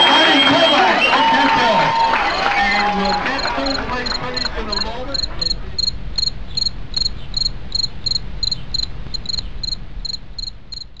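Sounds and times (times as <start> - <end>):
crickets chirping: 1.9 - 11.0
low steady rumble: 2.4 - 11.0.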